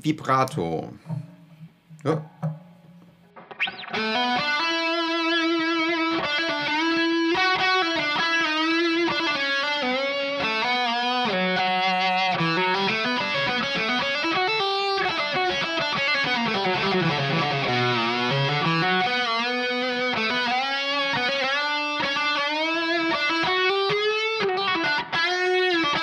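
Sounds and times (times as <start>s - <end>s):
electric guitar lead melody: 1.2s - 26.0s.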